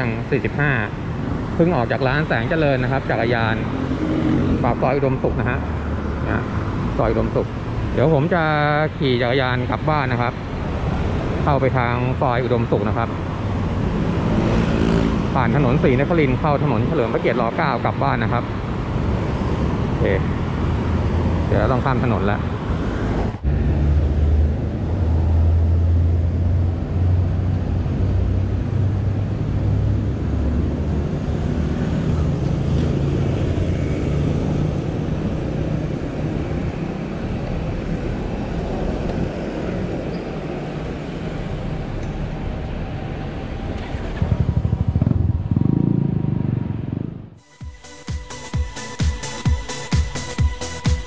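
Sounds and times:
vehicle engines and tyre noise: 0:00.0 - 0:51.0
engine passing with rising pitch: 0:02.0 - 0:06.6, 0:13.0 - 0:17.0, 0:19.0 - 0:51.0.

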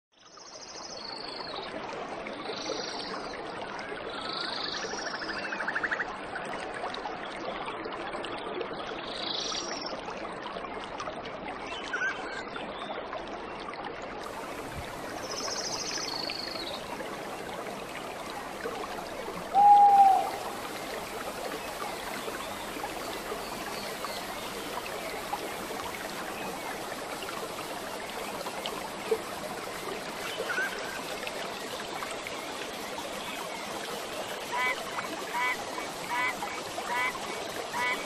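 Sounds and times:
water flowing and trickling: 0:00.2 - 0:38.0
short low bird call: 0:19.5 - 0:20.5
birds chirping: 0:19.5 - 0:25.7.

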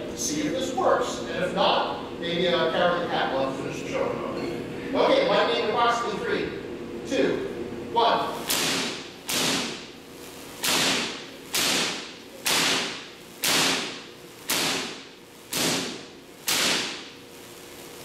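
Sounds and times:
sharp electric spark cracks: 0:08.3 - 0:18.0.

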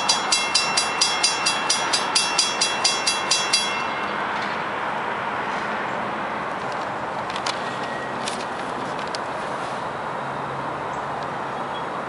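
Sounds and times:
railroad crossing bells ringing: 0:00.0 - 0:06.4.

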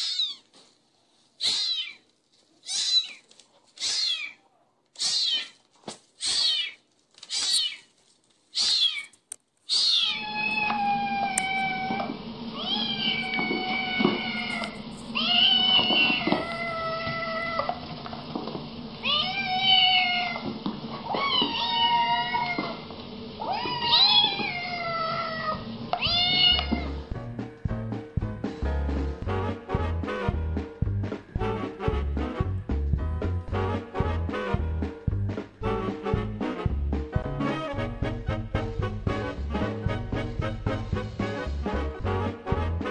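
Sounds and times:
kittens mewing: 0:01.4 - 0:05.6, 0:06.2 - 0:07.9, 0:08.5 - 0:17.8, 0:19.0 - 0:22.8, 0:23.4 - 0:27.0.

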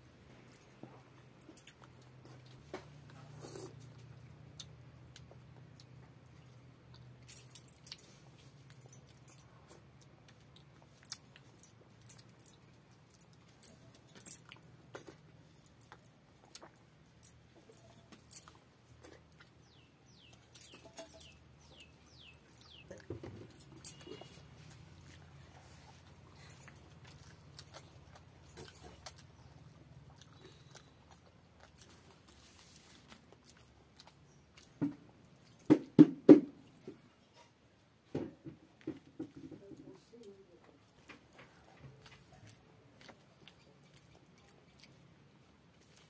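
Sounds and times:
wet chewing and smacking: 0:00.3 - 0:35.7, 0:40.0 - 0:46.0
bird chirping: 0:19.3 - 0:24.5.

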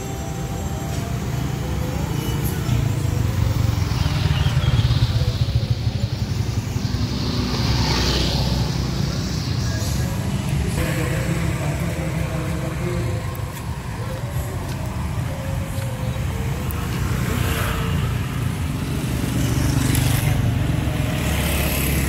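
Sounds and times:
low traffic rumble: 0:00.0 - 0:22.0
motorcycles riding past: 0:00.8 - 0:22.0
faint voices: 0:08.2 - 0:22.0.

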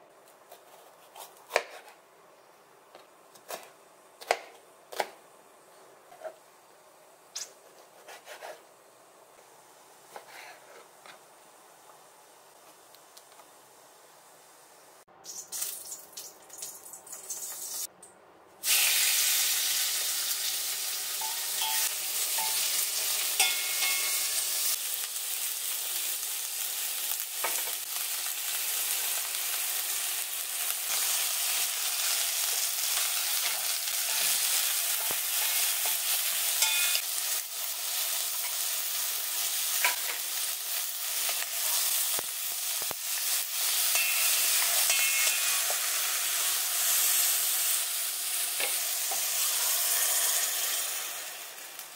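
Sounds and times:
wooden spatula scraping: 0:07.6 - 0:08.6, 0:10.1 - 0:11.2
food sizzling in oil: 0:15.2 - 0:17.9, 0:18.6 - 0:51.9.

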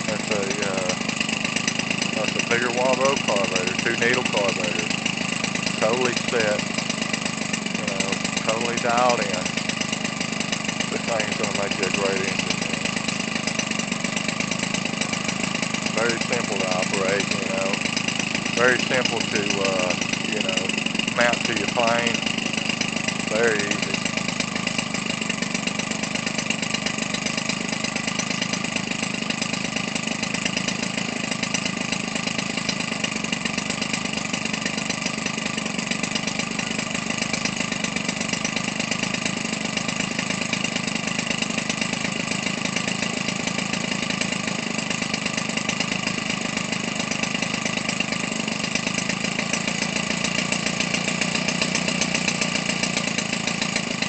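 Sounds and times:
small two-stroke engine running: 0:00.0 - 0:54.0.

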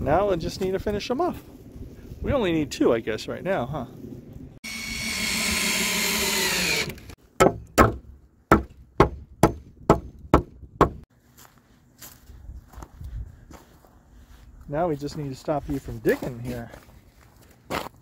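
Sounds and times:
cordless screwdriver driving screw: 0:04.7 - 0:07.2.

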